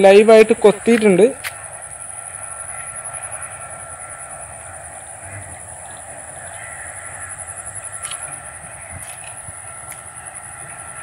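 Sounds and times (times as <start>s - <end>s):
birds calling: 0.0s - 11.0s
high-pitched insect drone: 0.0s - 11.0s.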